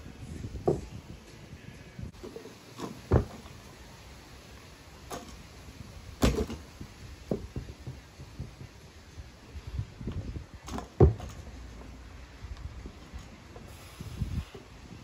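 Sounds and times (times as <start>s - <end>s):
barbell thudding on platform: 2.8s - 3.5s, 6.2s - 8.8s.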